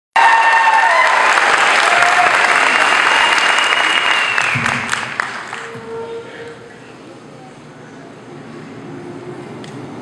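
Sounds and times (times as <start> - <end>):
audience applauding: 0.2 - 5.8.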